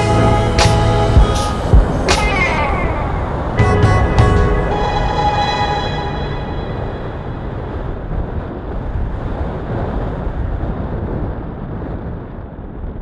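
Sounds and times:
wind rushing over microphone: 0.0s - 13.0s.

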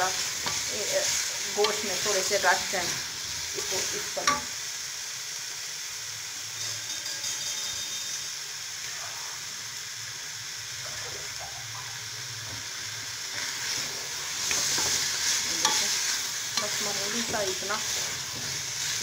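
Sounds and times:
meat sizzling in ghee: 0.0s - 19.0s
spatula stirring meat: 13.3s - 19.0s.

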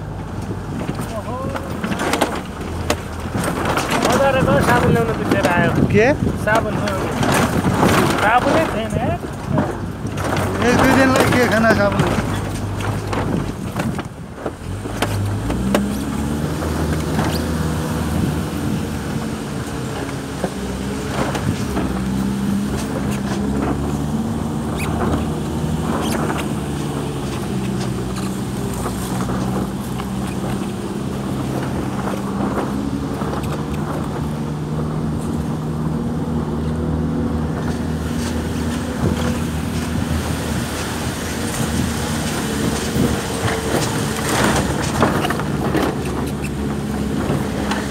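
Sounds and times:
engine running steadily: 0.0s - 47.9s.

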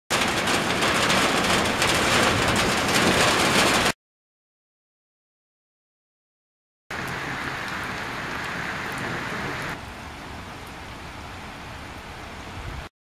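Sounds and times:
rain hissing: 0.1s - 3.9s, 6.9s - 12.7s.

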